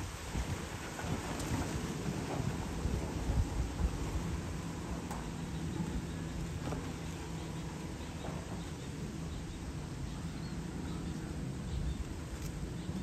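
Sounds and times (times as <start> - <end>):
distant construction machinery drone: 0.0 - 13.0.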